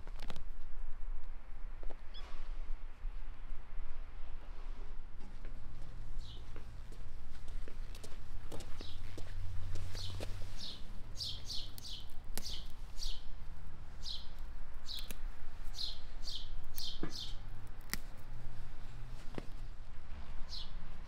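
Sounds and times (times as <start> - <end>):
small bird chirping: 6.2 - 6.5, 8.8 - 9.3, 9.9 - 13.3, 14.0 - 17.4.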